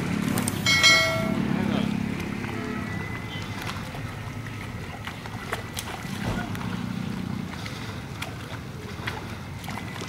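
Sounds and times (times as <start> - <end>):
water sloshing around waders: 0.0 - 10.0
fish splashing: 2.1 - 10.0.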